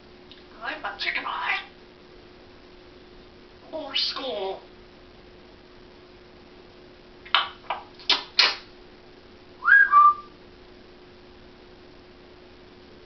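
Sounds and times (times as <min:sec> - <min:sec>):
parrot whistle: 0:09.6 - 0:10.4.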